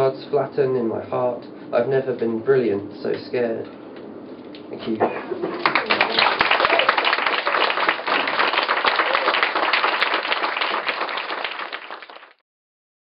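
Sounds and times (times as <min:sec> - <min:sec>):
audience applauding: 0:05.4 - 0:12.4.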